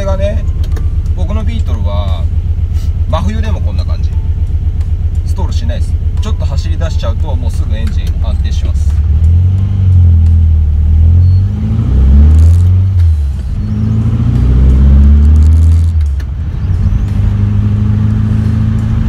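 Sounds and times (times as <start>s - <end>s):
car engine revving through gears: 7.8s - 19.0s.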